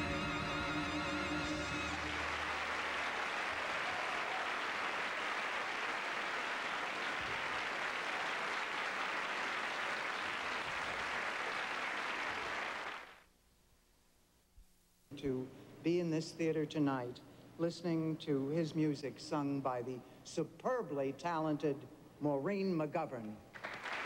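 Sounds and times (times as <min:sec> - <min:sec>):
band's held notes: 0:00.0 - 0:02.7
audience applauding: 0:00.0 - 0:13.2, 0:23.5 - 0:24.0.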